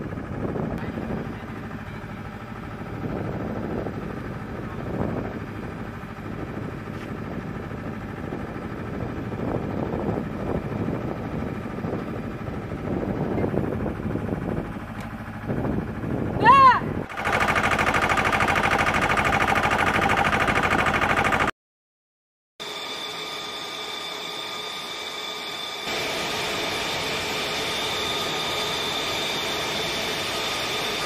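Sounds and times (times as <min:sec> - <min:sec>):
machinery engine drone: 0:00.0 - 0:21.5, 0:22.6 - 0:31.0
faint high whine: 0:22.6 - 0:31.0.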